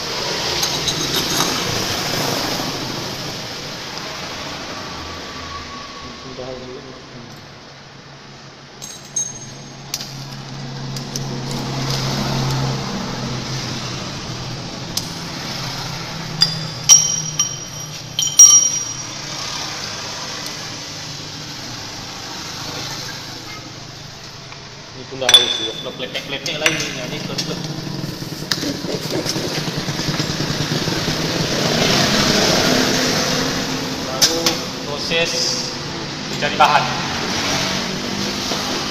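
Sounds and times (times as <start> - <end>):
metal clinking: 8.8 - 10.4, 16.2 - 19.6, 25.2 - 27.0
metal clatter: 16.4 - 19.2.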